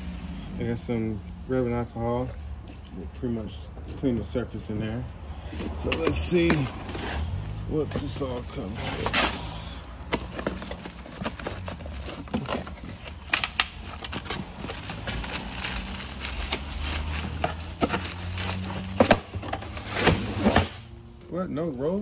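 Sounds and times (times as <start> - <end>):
packaging rustling and crinkling: 5.5 - 20.8.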